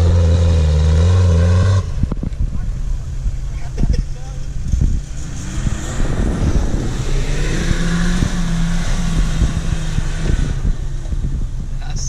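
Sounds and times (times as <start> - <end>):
off-road vehicle engine under load: 0.0 - 12.0.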